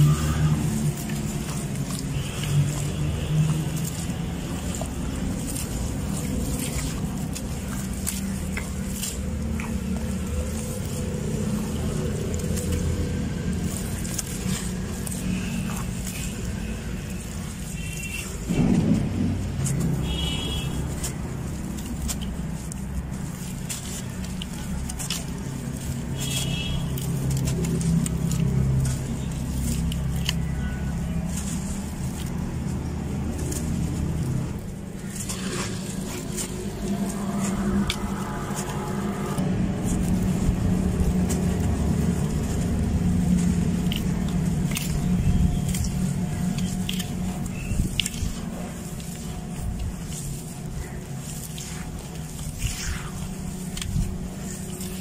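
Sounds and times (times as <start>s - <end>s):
hands crunching wet sand: 0.0s - 55.0s
low rumble: 18.4s - 26.2s, 26.9s - 55.0s.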